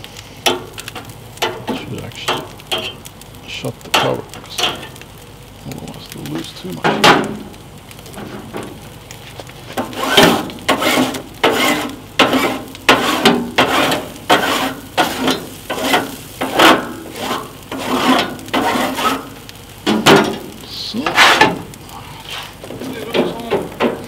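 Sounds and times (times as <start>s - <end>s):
metal spatula scraping griddle: 1.4s - 3.1s, 9.7s - 24.0s.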